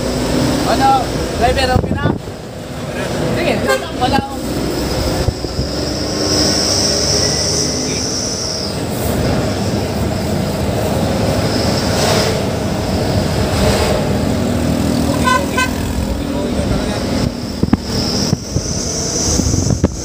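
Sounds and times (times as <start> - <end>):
road noise: 0.0 - 20.0
truck diesel engine: 0.0 - 20.0
high squeal: 5.4 - 9.6, 15.0 - 20.0.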